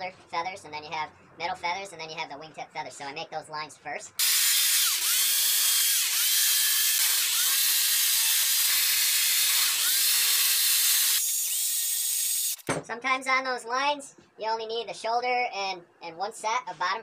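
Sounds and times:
chainsaw cutting wood: 4.2s - 12.7s.

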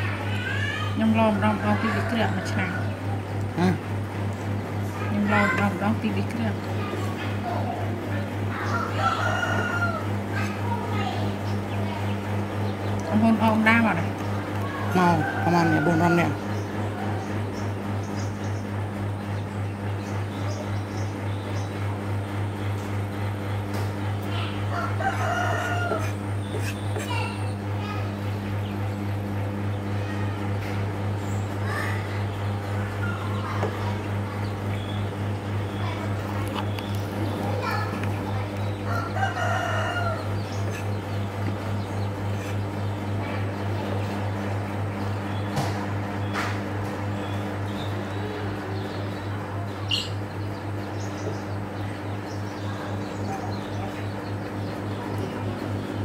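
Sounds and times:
steady low hum: 0.0s - 56.0s
rooster crowing: 1.5s - 3.0s, 8.7s - 10.1s, 14.8s - 16.4s, 24.7s - 26.2s, 38.9s - 40.8s.

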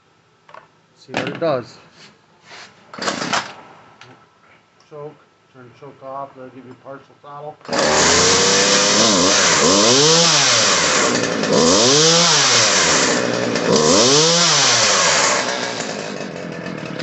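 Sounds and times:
chainsaw engine revving: 3.0s - 3.5s, 7.6s - 17.0s.

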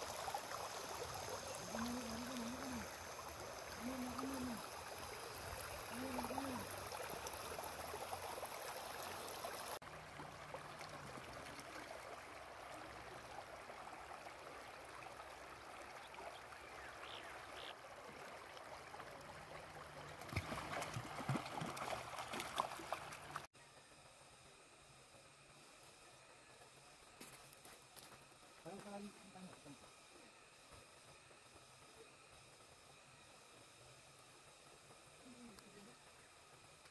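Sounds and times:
river running over stones: 0.0s - 23.5s
dog splashing through water: 20.1s - 23.4s.

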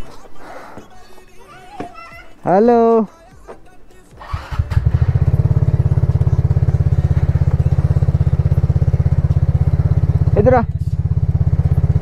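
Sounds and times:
scooter engine starting and idling: 4.2s - 12.0s.

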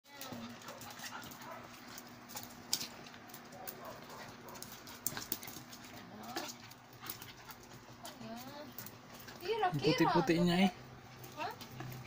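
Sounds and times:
dog claws clicking on hard floor: 0.2s - 9.6s.

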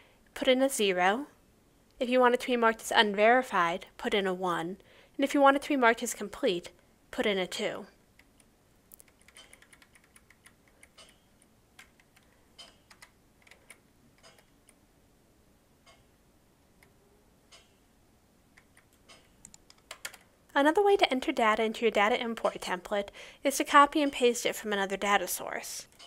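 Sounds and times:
computer keyboard keystrokes: 8.2s - 11.2s, 11.8s - 14.8s, 18.6s - 20.3s.

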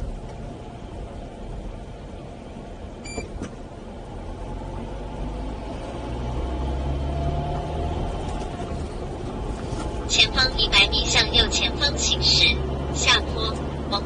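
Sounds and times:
car engine accelerating: 0.0s - 14.0s
short electronic beep: 3.0s - 3.3s.

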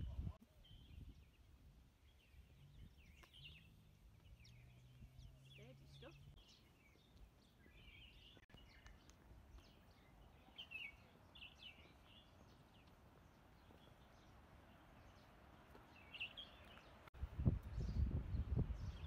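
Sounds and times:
wind buffeting microphone: 0.0s - 3.6s, 17.1s - 19.0s
bird chirps and calls: 0.0s - 17.0s.

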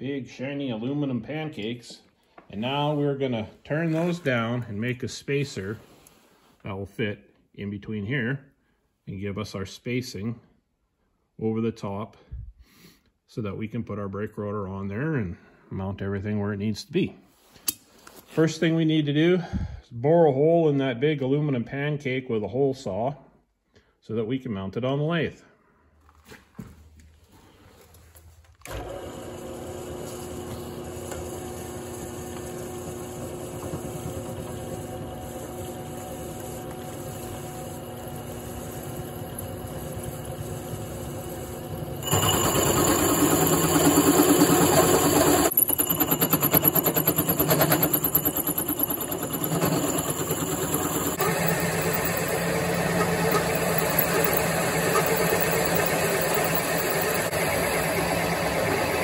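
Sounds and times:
drill press motor running: 28.6s - 59.0s
hole saw cutting aluminum: 28.7s - 59.0s.

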